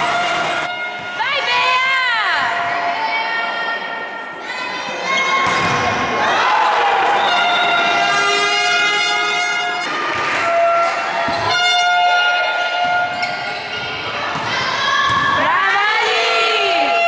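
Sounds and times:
crowd shouting and cheering: 0.0s - 17.0s
stadium horns blowing: 7.0s - 13.2s.

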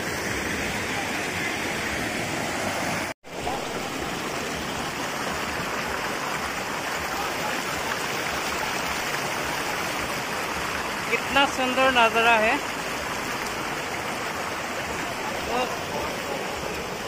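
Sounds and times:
water rushing over stones: 0.0s - 17.0s.

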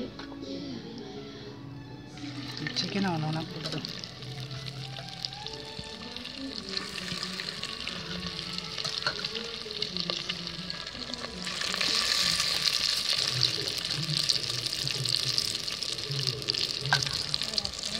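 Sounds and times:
chicken deep-frying in oil: 2.2s - 17.9s.

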